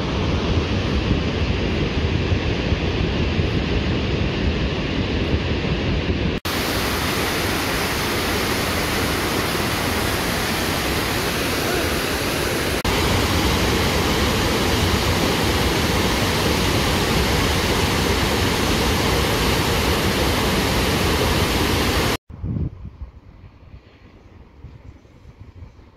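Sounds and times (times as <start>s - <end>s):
waterfall rushing: 6.5s - 22.2s.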